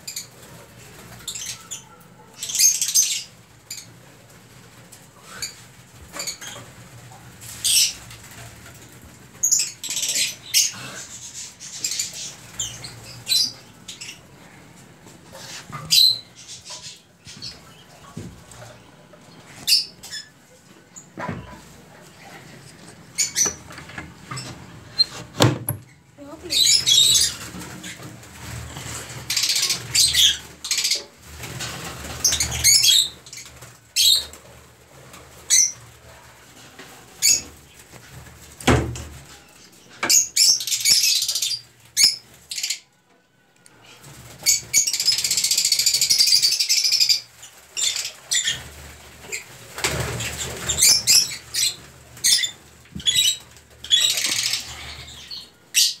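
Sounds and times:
birds flapping wings: 0:26.7 - 0:36.6, 0:47.0 - 0:54.8.

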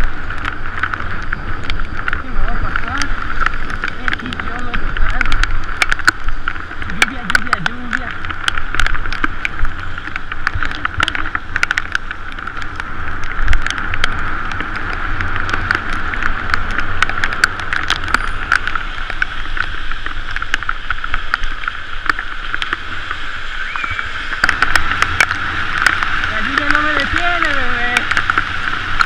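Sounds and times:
bicycle clicks and rattles: 0:00.0 - 0:22.8
tyres hissing on wet road: 0:00.0 - 0:29.0
wind: 0:00.0 - 0:29.0.

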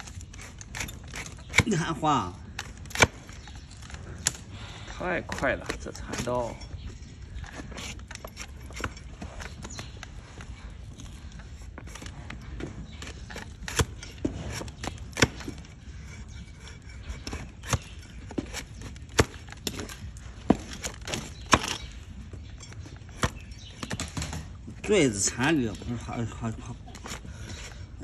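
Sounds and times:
shovel cutting hoof horn: 0:00.0 - 0:28.0.

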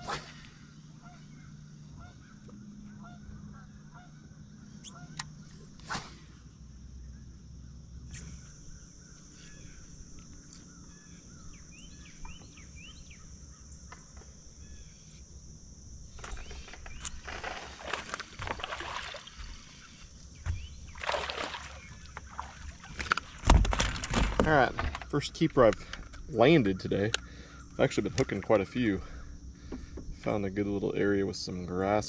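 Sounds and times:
faint bird chirps: 0:00.2 - 0:05.8, 0:06.4 - 0:15.2
fish splashing in water: 0:17.4 - 0:20.0, 0:20.9 - 0:23.9.

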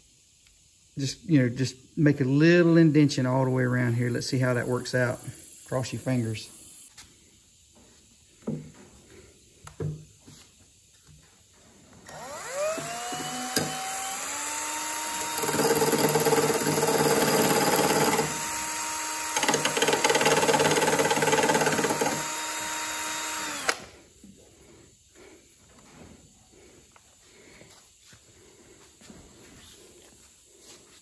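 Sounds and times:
drill motor whining: 0:12.0 - 0:24.0
cutting wheel grinding fiberglass: 0:12.1 - 0:23.8.

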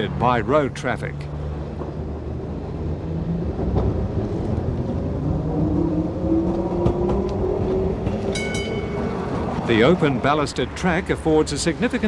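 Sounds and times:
tram rumble: 0:00.0 - 0:12.0
wheels clicking on rails: 0:03.6 - 0:12.0.

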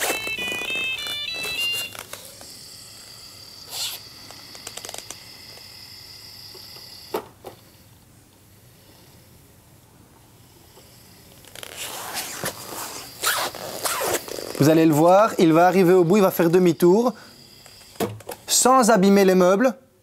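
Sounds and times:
electronic beeps: 0:00.0 - 0:02.0.

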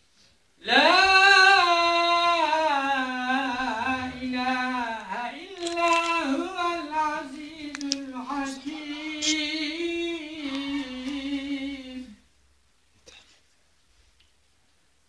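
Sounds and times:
person chanting recitation: 0:00.6 - 0:12.2.

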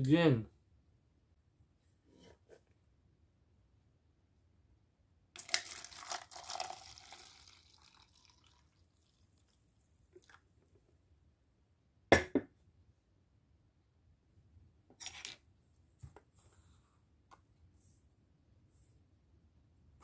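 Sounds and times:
coffee pouring into cup: 0:05.4 - 0:09.6, 0:10.2 - 0:10.4.

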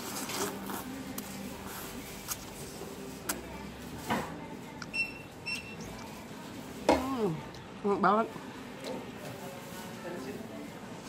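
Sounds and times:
short high beeps: 0:04.9 - 0:05.8.

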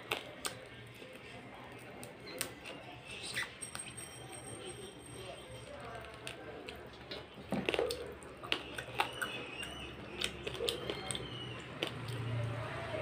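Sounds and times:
lip smacks and mouth clicks: 0:00.0 - 0:01.0, 0:06.2 - 0:12.5
wet chewing: 0:00.0 - 0:04.7, 0:05.3 - 0:13.0.

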